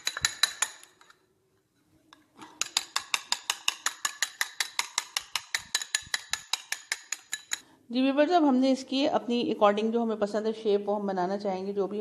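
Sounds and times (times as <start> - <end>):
egg beaten in a ceramic bowl: 0.0 - 1.1, 2.4 - 7.6.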